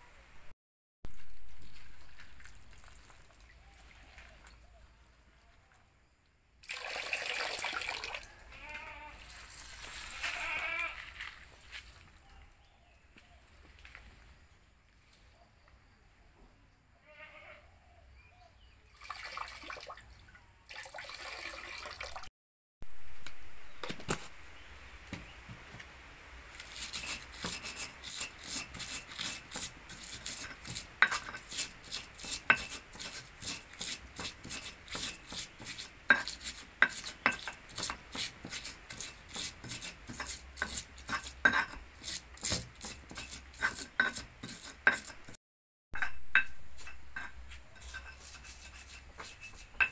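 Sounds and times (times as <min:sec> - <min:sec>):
water splashing at a tap: 0:01.1 - 0:03.5, 0:06.6 - 0:08.3, 0:18.9 - 0:22.3
pestle grinding in stone mortar: 0:26.6 - 0:45.4, 0:46.0 - 0:49.9.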